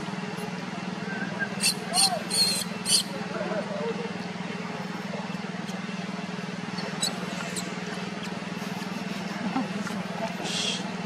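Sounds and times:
pulsing motor hum: 0:00.0 - 0:11.0
baby monkey squeaks: 0:01.6 - 0:03.1, 0:06.8 - 0:08.4.

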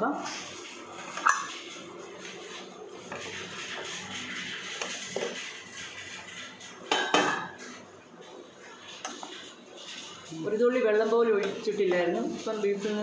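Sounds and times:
pressure cooker steam hissing: 0:00.2 - 0:13.0.

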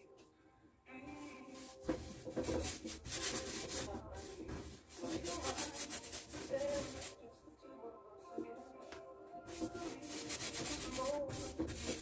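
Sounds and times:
paintbrush scrubbing on canvas: 0:01.5 - 0:07.2, 0:09.5 - 0:12.0.

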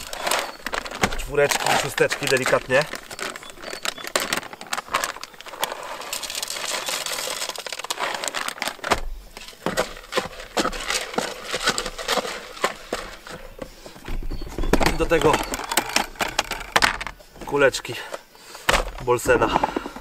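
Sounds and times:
fishing pellets rattling: 0:00.0 - 0:08.9.

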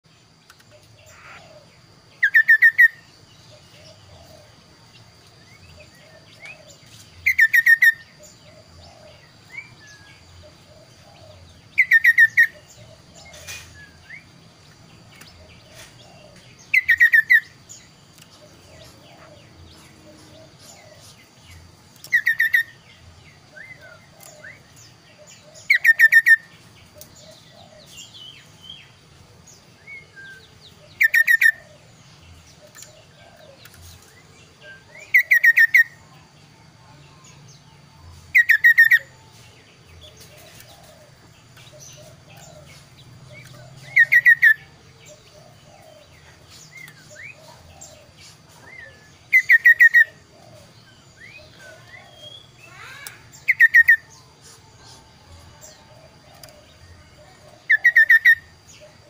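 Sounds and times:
soft bird chirps: 0:00.0 - 0:59.0
songbird calling fast repeated notes: 0:01.1 - 0:04.0, 0:07.2 - 0:08.2, 0:10.5 - 0:13.1, 0:22.0 - 0:22.8, 0:52.2 - 0:54.1.

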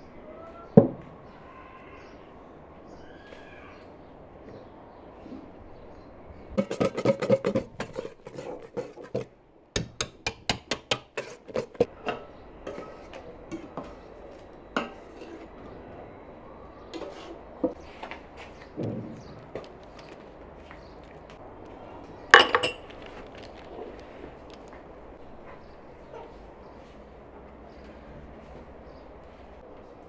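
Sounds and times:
whisk clinking against metal bowl: 0:06.6 - 0:09.3, 0:10.0 - 0:11.9.

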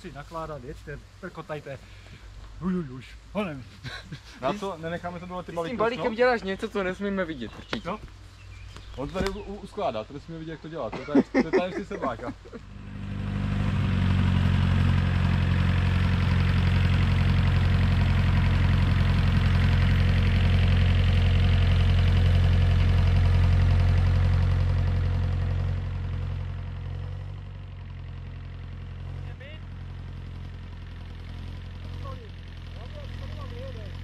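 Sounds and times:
tractor diesel engine running: 0:11.3 - 0:34.0.

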